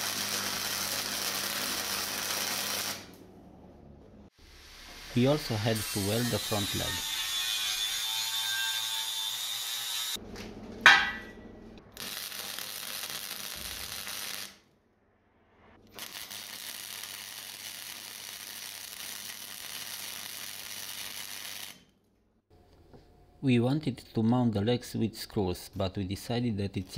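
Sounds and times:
welding crackling hiss: 0.0 - 3.1, 11.9 - 14.6, 15.9 - 21.9
angle grinder grinding steel: 5.0 - 10.2
sharp knock: 10.9 - 11.3.

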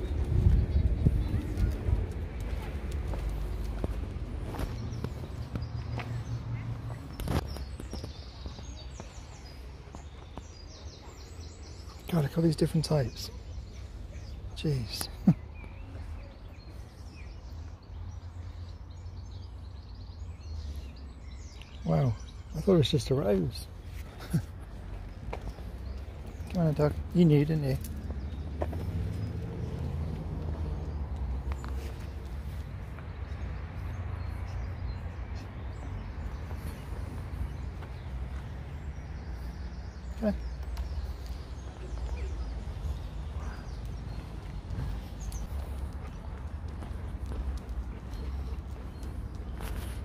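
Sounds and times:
steady low rumble: 0.0 - 7.2
faint birds chirping: 0.0 - 50.0.

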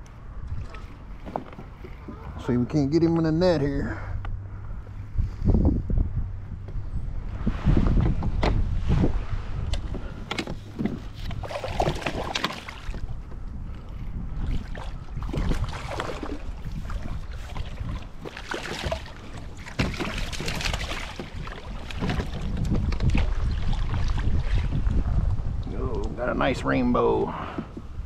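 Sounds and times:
fish splashing in water: 11.3 - 13.1, 14.5 - 24.7.

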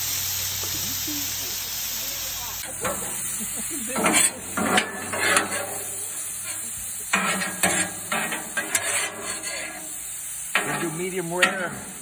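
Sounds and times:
meat sizzling on a griddle: 0.0 - 12.0
spatula scraping griddle plate: 2.7 - 12.0.

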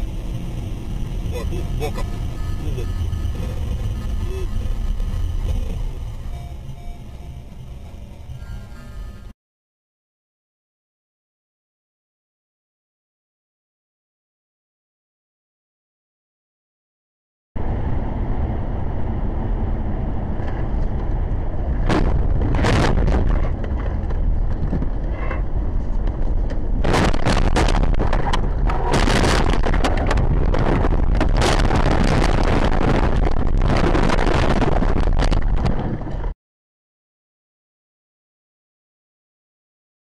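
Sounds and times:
road and wind rumble: 0.0 - 9.3, 17.6 - 36.4.

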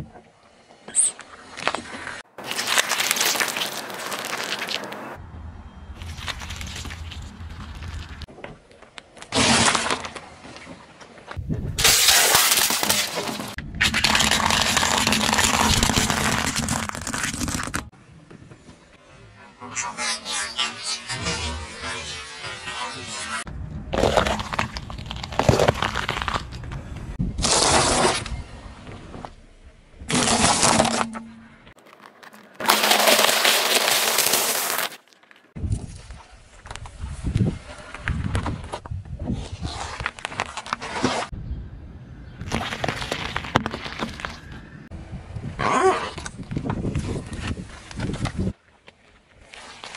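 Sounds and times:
plastic cup cracking: 2.4 - 5.0, 11.8 - 17.9, 31.8 - 35.4
tyre crushing dry pasta: 2.4 - 5.1, 11.8 - 17.9, 23.9 - 26.8, 31.8 - 35.5.

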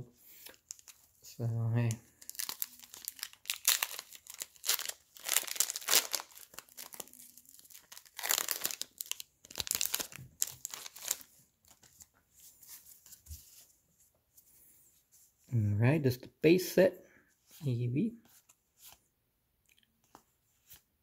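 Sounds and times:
foil wrapper crinkling and tearing: 0.4 - 1.0, 2.1 - 11.9.

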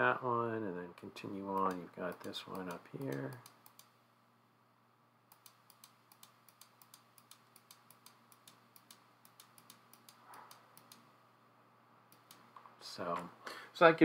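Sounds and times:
faint computer mouse clicks: 1.6 - 3.9, 5.3 - 11.1.

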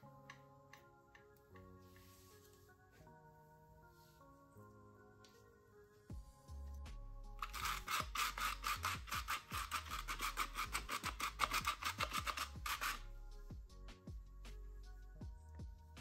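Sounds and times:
soft background music: 0.0 - 16.0
sieve mesh rasping: 7.4 - 13.0.

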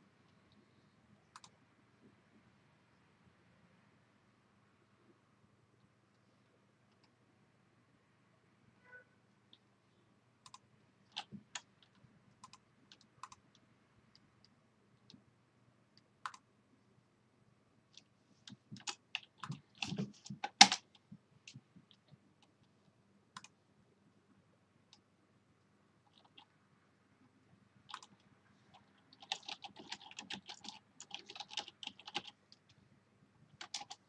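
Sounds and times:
keyboard typing: 1.3 - 1.6, 10.4 - 13.6, 16.2 - 16.5, 17.9 - 22.6, 23.3 - 23.6, 26.1 - 26.5, 27.8 - 32.8, 33.5 - 34.0
mouse clicks: 1.3 - 1.6, 10.4 - 15.2, 16.0 - 16.4, 23.4 - 23.6.

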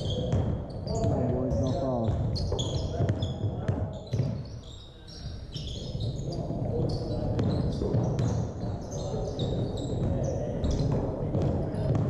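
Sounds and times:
basketball bouncing: 0.0 - 4.5, 5.6 - 12.0
sneakers squeaking: 0.0 - 12.0
players' voices murmuring: 0.1 - 12.0.

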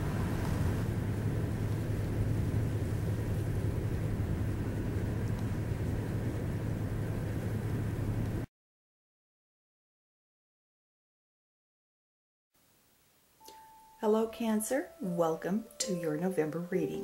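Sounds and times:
low outdoor rumble: 0.0 - 8.5.

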